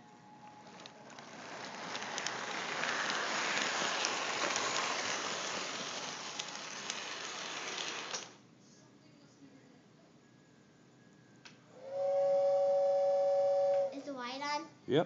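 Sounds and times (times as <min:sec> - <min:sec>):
model train rattling on track: 0:00.7 - 0:08.4.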